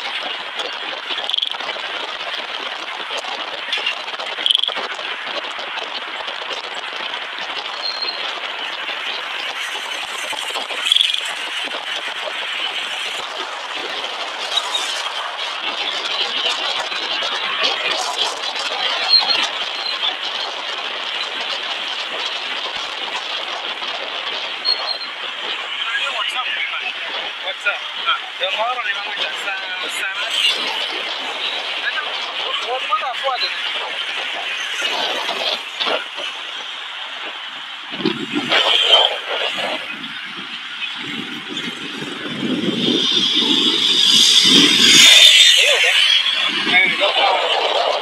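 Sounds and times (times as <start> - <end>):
vehicle road and wind noise: 0.0 - 48.0
small clicks and rattles: 1.1 - 8.3.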